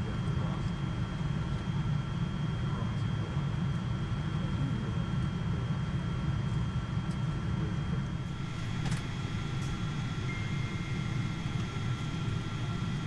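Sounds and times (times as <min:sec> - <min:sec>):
airplane cabin rumble: 0:08.1 - 0:13.0
faint high-pitched tones: 0:08.2 - 0:13.0.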